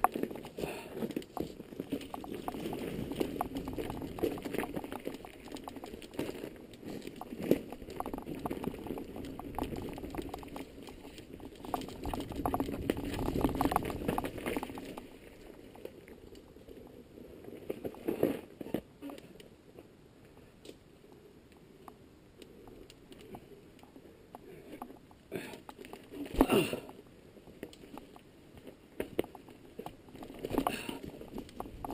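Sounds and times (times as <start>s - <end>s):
bike rattling: 0.0s - 16.5s, 28.9s - 31.9s
bike tyres crunching over gravel: 0.0s - 16.5s.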